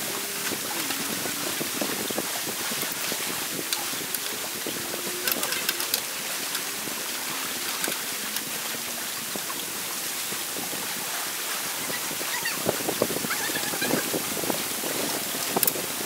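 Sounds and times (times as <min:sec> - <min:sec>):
lake water lapping: 0:00.0 - 0:16.0
wind on microphone: 0:00.0 - 0:16.0.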